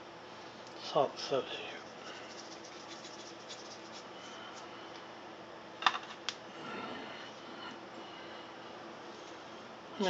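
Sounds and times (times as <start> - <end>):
shaker ticks and scratches: 1.5 - 4.7.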